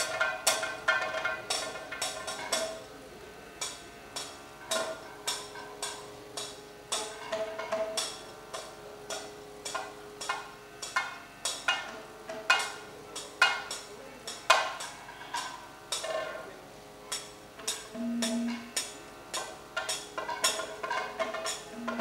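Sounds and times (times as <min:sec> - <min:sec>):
faint steady drone: 0:00.0 - 0:22.0
ringing metallic strikes: 0:17.7 - 0:18.9, 0:21.7 - 0:22.0.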